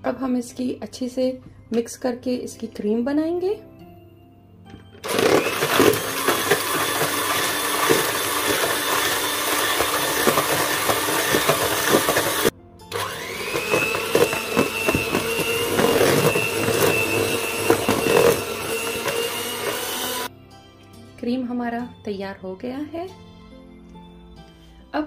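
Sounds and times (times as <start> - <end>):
electric hand mixer whirring: 5.0 - 20.3.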